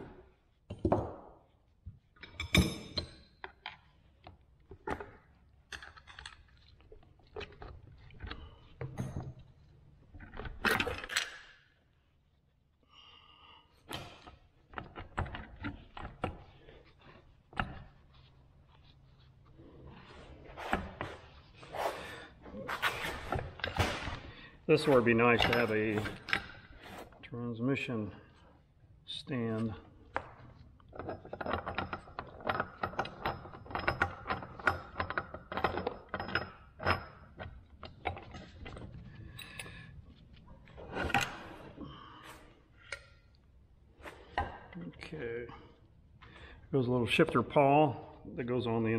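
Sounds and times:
metal knocks clicks and scrapes: 0:24.8 - 0:27.1, 0:30.1 - 0:39.8.

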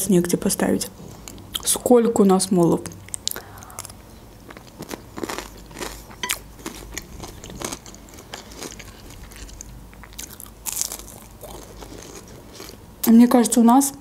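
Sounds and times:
chewing with crisp crackles: 0:02.8 - 0:12.8.

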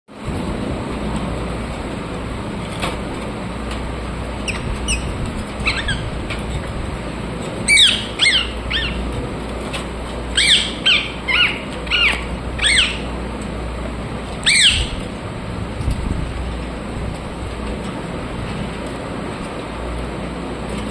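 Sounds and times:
steady low hum: 0:00.1 - 0:20.9
parakeets calling: 0:04.4 - 0:06.8, 0:07.6 - 0:13.2, 0:14.4 - 0:15.1.

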